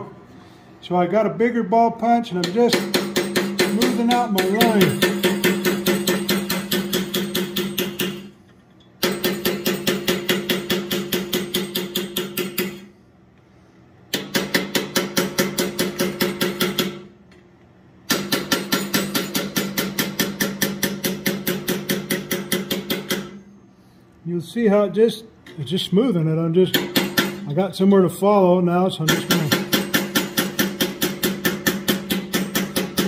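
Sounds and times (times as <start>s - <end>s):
hammer on metal punch: 2.4s - 8.4s, 9.0s - 12.9s, 14.1s - 17.1s, 18.0s - 23.5s, 26.7s - 27.5s, 29.0s - 33.0s.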